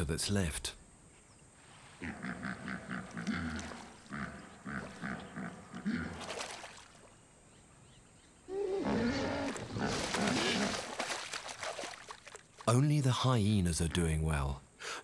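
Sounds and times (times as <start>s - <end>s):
hippopotamus honking grunts: 2.0s - 6.2s
splashing in mud and water: 3.0s - 5.3s, 5.9s - 7.2s, 9.2s - 13.0s.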